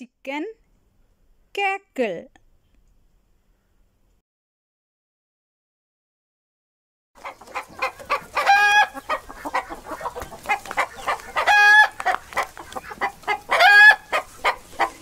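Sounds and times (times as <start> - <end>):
hen cackling: 7.2 - 15.0.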